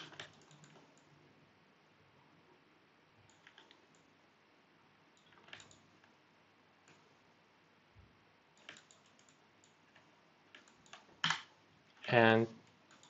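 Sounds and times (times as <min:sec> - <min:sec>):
mouse and keyboard clicking: 0:00.0 - 0:01.1, 0:03.3 - 0:04.1, 0:05.2 - 0:06.2, 0:08.6 - 0:11.5, 0:12.7 - 0:13.0.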